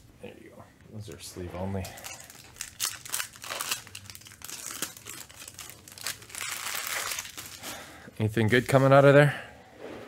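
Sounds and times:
foil wrapper tearing and crinkling: 2.0s - 7.7s.

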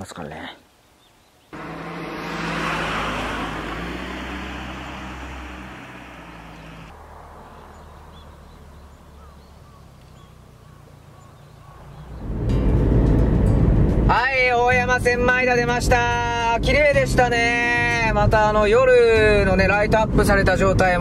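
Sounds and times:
faint outdoor ambience: 0.0s - 17.5s
car passing by: 1.6s - 9.5s.

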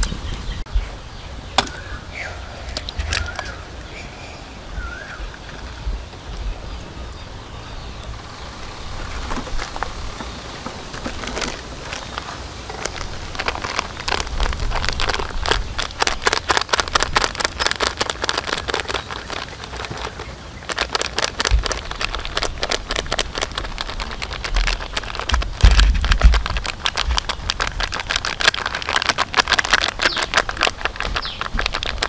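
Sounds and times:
plastic packet crinkling: 2.7s - 4.0s, 8.8s - 32.0s.

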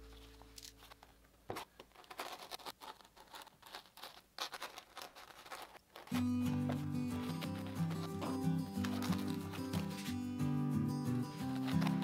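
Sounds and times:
knife scratching through foam: 1.9s - 10.2s, 11.4s - 12.0s.

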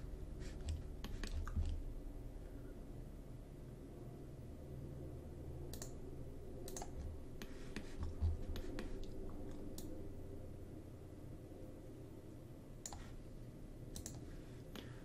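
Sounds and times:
steady low hum: 0.0s - 15.0s
computer mouse and keyboard clicks: 0.5s - 1.8s, 6.6s - 10.0s, 14.0s - 14.9s.

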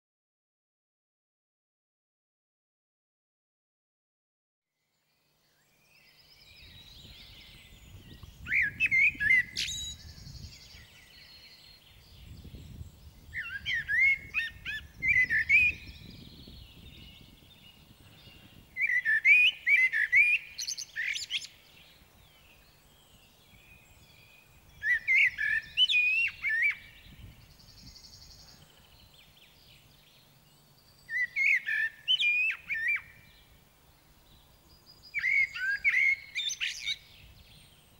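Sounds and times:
blackbird singing: 5.4s - 37.9s.

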